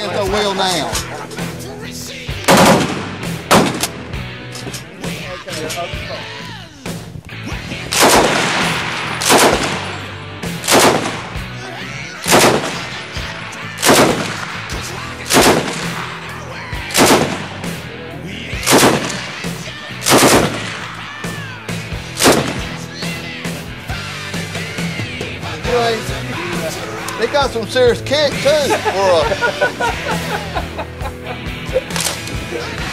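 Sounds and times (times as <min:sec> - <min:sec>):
machine gun shots: 0:02.5 - 0:04.0, 0:07.9 - 0:10.0, 0:10.6 - 0:11.4, 0:12.3 - 0:13.0, 0:13.8 - 0:14.6, 0:15.3 - 0:16.0, 0:16.9 - 0:17.6, 0:18.6 - 0:19.3, 0:20.0 - 0:20.9, 0:22.2 - 0:22.7.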